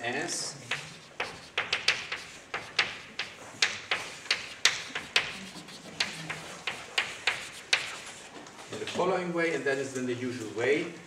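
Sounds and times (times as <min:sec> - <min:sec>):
chalk writing on a blackboard: 0:00.4 - 0:08.4.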